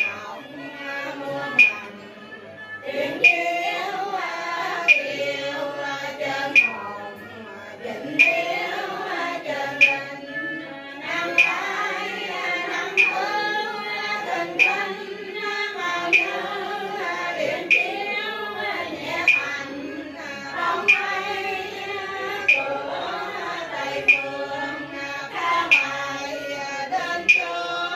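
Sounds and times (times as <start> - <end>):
voices singing prayer chant: 0.0 - 27.9
sharp struck beat: 6.5 - 6.9, 12.8 - 13.5, 14.4 - 15.1, 19.2 - 19.6, 22.4 - 23.1, 24.0 - 24.4.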